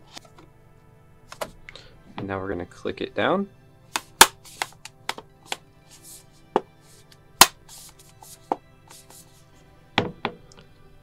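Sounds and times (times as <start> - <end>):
case snapping onto clips: 4.0 - 5.3.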